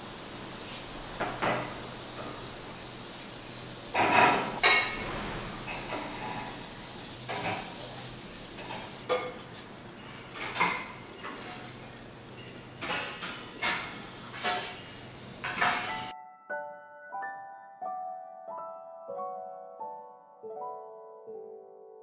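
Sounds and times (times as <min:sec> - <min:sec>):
metal dishes clinking: 0:04.0 - 0:06.6, 0:10.3 - 0:11.8, 0:12.8 - 0:16.1.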